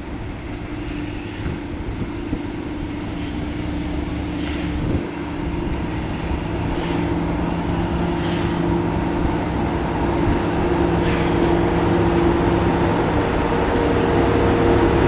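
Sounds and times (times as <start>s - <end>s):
locomotive engine hum: 0.0s - 15.0s
short hisses: 4.4s - 4.9s, 6.7s - 7.2s, 8.2s - 8.7s, 11.0s - 11.7s.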